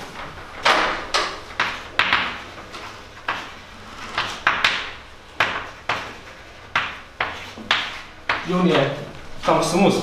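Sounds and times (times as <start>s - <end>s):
chalk tapping and scratching: 1.5s - 8.9s.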